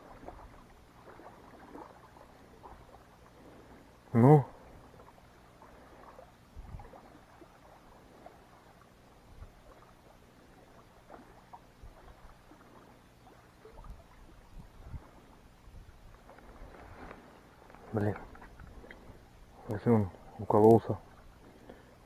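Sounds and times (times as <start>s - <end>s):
soft clicks and rustles: 16.2s - 19.1s.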